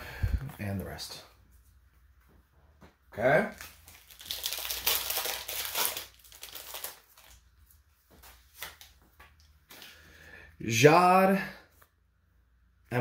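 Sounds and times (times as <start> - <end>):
wrapper tearing and crinkling: 3.5 - 7.5
cards rustling and clicking: 8.1 - 9.9.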